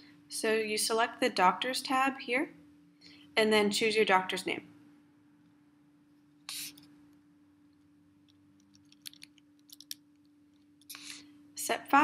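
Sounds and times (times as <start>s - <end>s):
low electrical hum: 0.0s - 12.0s
computer mouse clicks: 8.6s - 10.0s.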